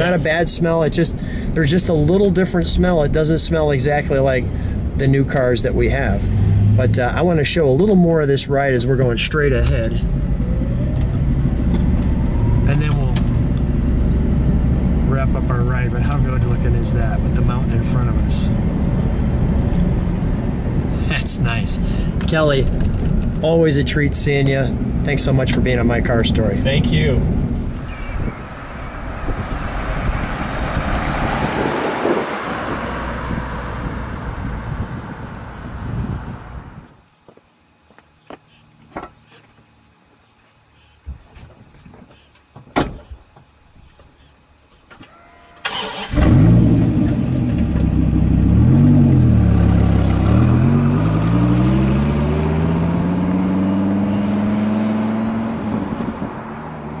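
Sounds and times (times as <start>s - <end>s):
car driving away: 0.0s - 36.9s, 45.6s - 57.0s
wind rumbling on microphone: 26.1s - 37.0s, 55.1s - 57.0s.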